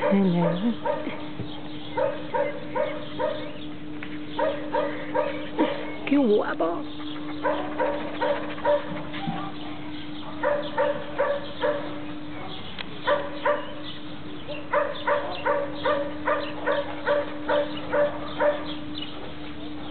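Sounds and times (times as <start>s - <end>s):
dog barking: 0.0s - 1.2s, 1.8s - 3.6s, 4.3s - 6.0s, 7.3s - 13.8s, 14.5s - 18.9s.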